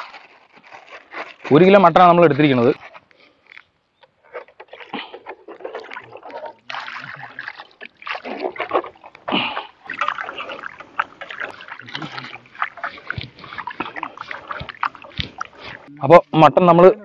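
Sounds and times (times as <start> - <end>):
hands sloshing and rubbing meat: 4.8 - 15.9.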